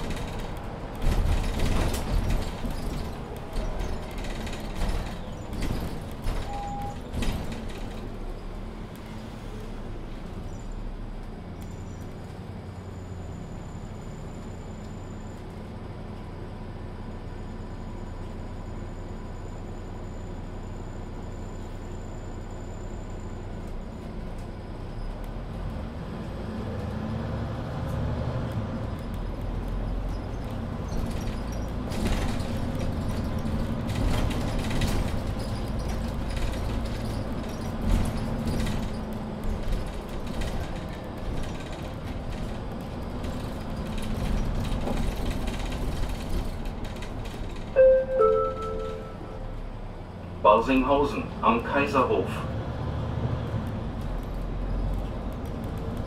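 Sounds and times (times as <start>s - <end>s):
bus engine rumble: 0.0s - 56.0s
short beeps: 6.4s - 7.0s, 47.8s - 49.6s.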